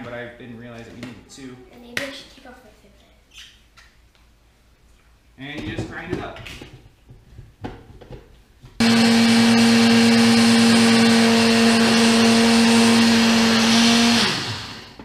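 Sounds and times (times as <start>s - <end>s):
blade grinder motor hum: 8.8s - 15.0s.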